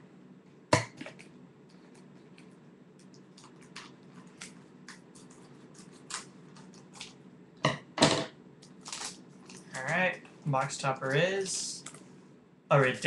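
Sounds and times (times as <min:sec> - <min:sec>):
packaging crinkling and crackling: 0:08.6 - 0:10.2
packaging ripping: 0:08.8 - 0:10.0.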